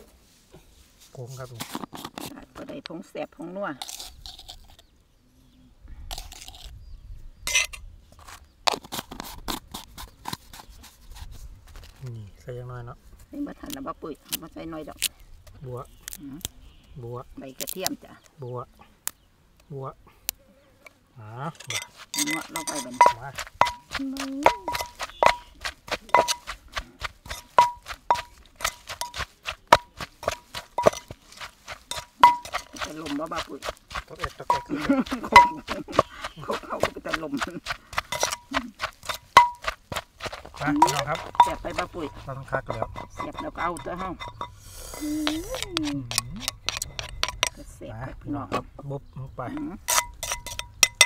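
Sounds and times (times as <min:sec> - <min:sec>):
utensils clinking and scraping pot: 0:07.5 - 0:07.8, 0:21.5 - 0:47.7, 0:49.8 - 0:51.0.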